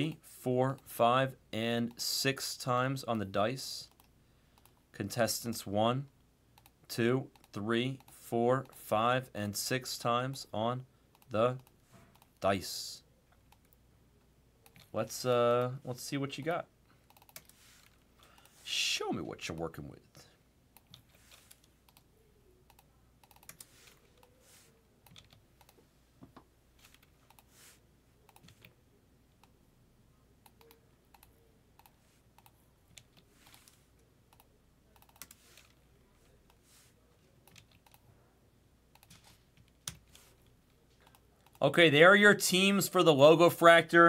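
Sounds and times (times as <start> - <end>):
keyboard and mouse clicks: 3.9 - 4.8, 11.1 - 12.4, 14.6 - 14.9, 17.0 - 18.5, 22.7 - 24.4, 25.0 - 27.5, 28.2 - 28.8, 30.4 - 35.8, 38.9 - 40.2.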